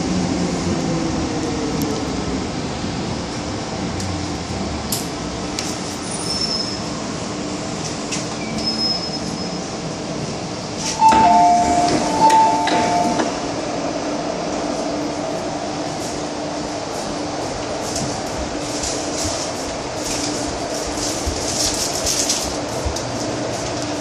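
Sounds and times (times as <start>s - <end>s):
train pulling into station: 0.0s - 24.0s
brake squeals: 5.8s - 7.0s, 8.3s - 9.8s
two-tone door chime: 11.0s - 13.3s.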